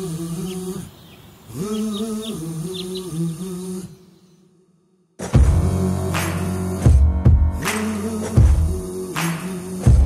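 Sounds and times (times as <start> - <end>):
deep drum hits: 6.9 - 7.6.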